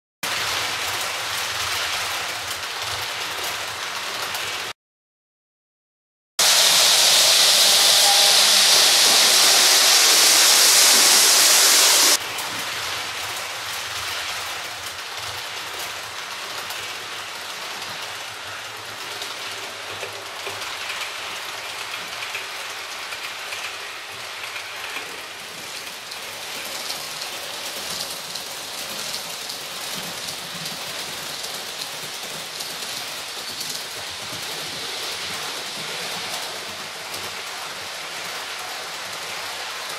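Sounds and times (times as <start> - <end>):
loud hiss: 6.4 - 12.2.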